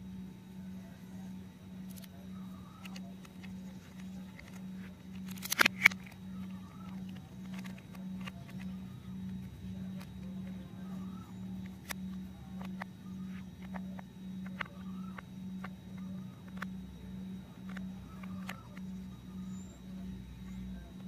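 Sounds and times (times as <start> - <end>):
steady low hum: 0.0 - 21.0
plastic toy parts clicking: 1.9 - 2.1, 2.8 - 10.6, 12.6 - 15.7, 16.4 - 16.7, 17.7 - 18.9.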